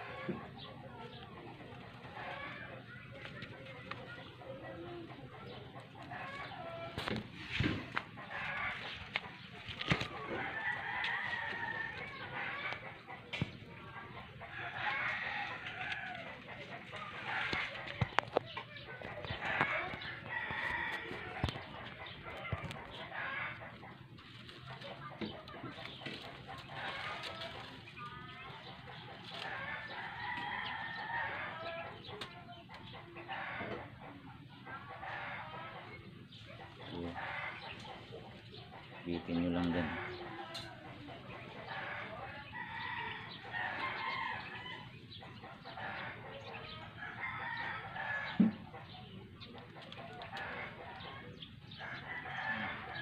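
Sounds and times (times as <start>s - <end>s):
rooster crowing: 10.1s - 12.8s, 19.3s - 21.5s, 41.7s - 44.9s, 51.9s - 53.0s.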